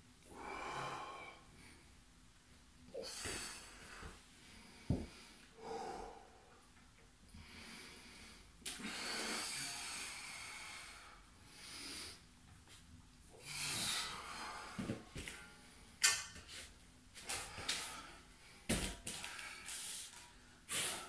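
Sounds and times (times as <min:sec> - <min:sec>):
man breathing hard: 0:00.3 - 0:01.9, 0:03.0 - 0:06.6, 0:07.3 - 0:12.3, 0:13.4 - 0:15.5, 0:17.2 - 0:21.0.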